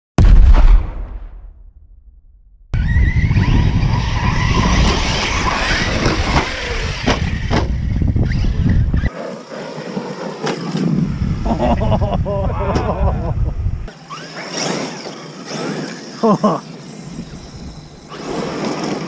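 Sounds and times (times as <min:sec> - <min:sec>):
boom: 0:00.2 - 0:03.5
tires on dirt: 0:02.7 - 0:19.0
electric motors whining: 0:02.8 - 0:11.7, 0:13.8 - 0:19.0.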